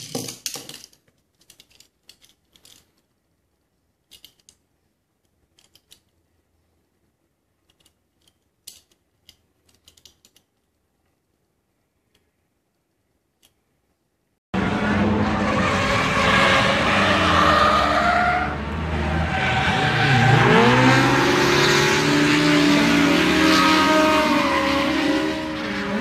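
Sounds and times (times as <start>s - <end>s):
faint toy car clicks: 4.0s - 6.2s
racing car engines: 14.6s - 26.0s
tyre squeal: 15.4s - 21.3s.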